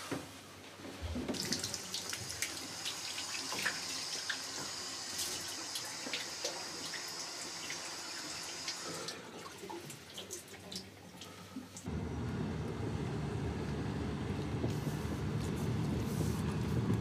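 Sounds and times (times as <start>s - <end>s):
water running from a tap: 1.3s - 9.2s.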